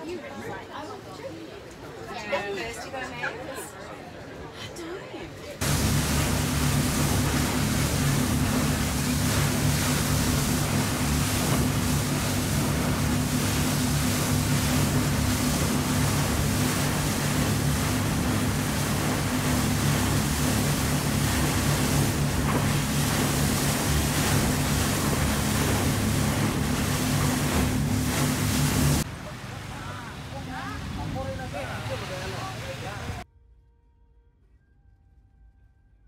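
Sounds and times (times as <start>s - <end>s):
wind: 0.0s - 33.2s
water rushing along hull: 5.5s - 33.2s
boat engine drone: 5.6s - 33.2s.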